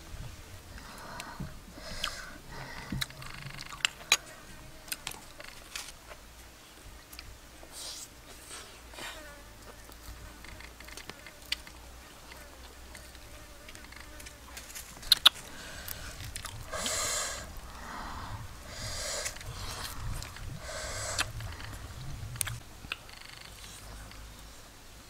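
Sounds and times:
fly buzzing: 7.8s - 22.3s
sharp clicks: 15.0s - 16.6s.

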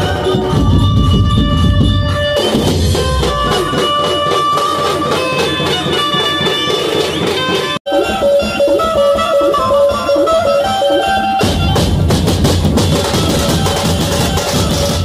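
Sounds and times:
band playing loud live music: 0.0s - 15.0s
drumming: 0.0s - 15.0s.

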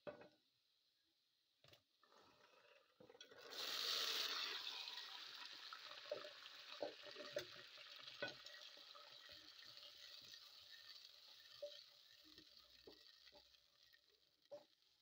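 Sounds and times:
peas sizzling in hot oil: 3.3s - 15.0s.

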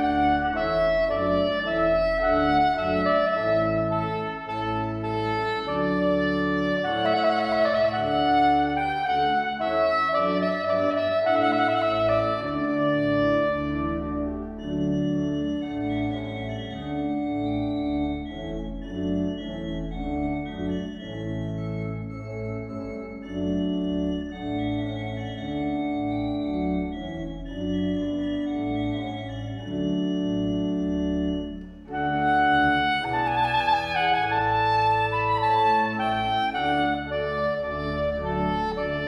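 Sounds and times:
soprano saxophone melody: 0.0s - 15.0s, 29.7s - 39.0s
church organ chords: 0.0s - 39.0s.

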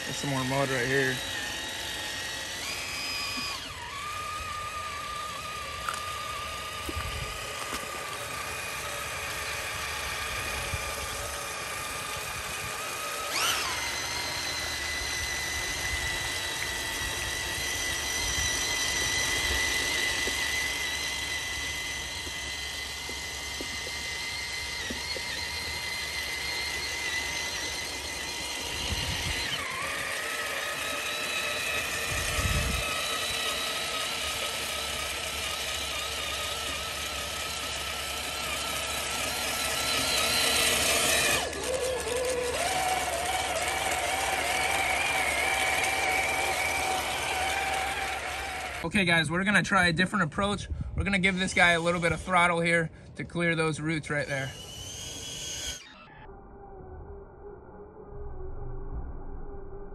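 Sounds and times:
electric motor whine: 0.0s - 59.9s
low rumbles: 56.2s - 59.9s.

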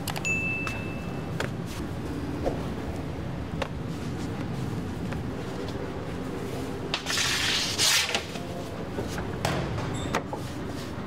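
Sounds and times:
steady kitchen hum: 0.0s - 11.0s.

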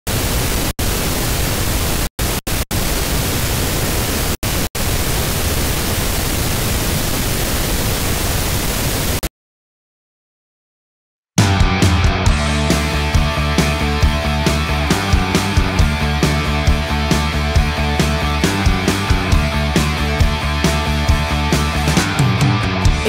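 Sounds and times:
television static hiss: 0.1s - 9.3s.

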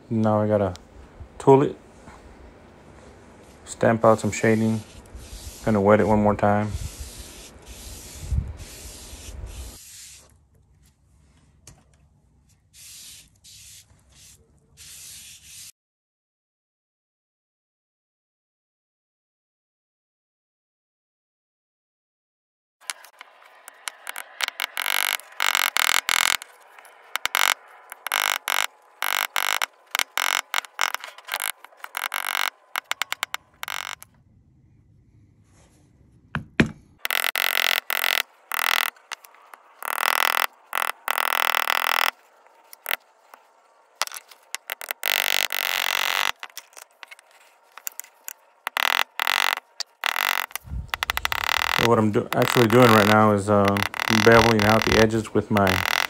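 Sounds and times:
rustling and scraping: 22.8s - 34.1s, 37.0s - 56.0s.

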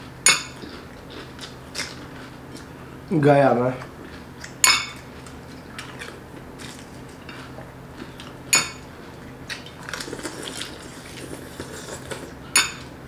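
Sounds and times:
clinks against glass bowl: 8.5s - 8.8s, 12.6s - 12.9s.

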